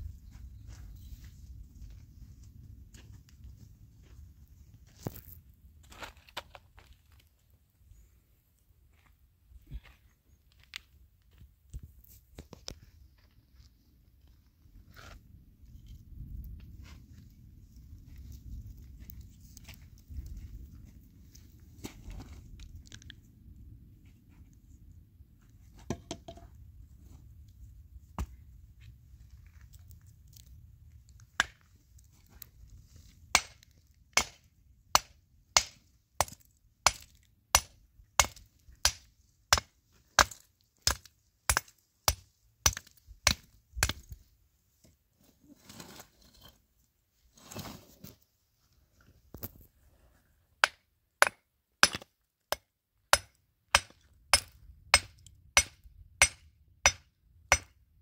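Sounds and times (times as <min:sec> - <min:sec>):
hammer striking stone: 0:50.6 - 0:57.8.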